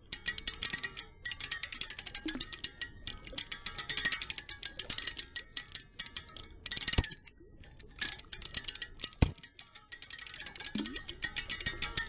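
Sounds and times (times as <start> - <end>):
water wheel paddles clicking: 8.0 - 12.0.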